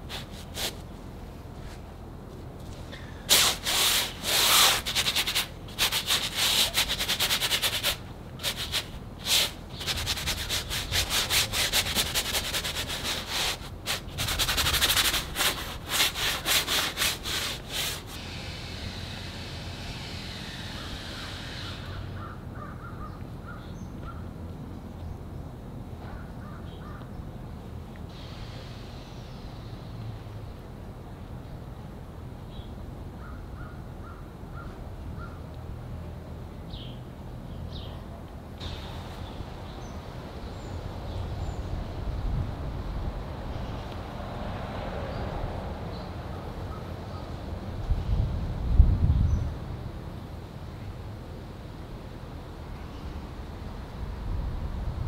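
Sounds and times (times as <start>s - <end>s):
paint scrubbed onto canvas: 0.0s - 0.9s, 3.3s - 18.4s.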